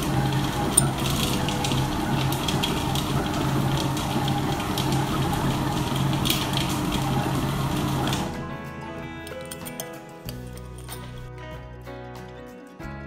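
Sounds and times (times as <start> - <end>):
food processor motor humming: 0.0 - 8.4.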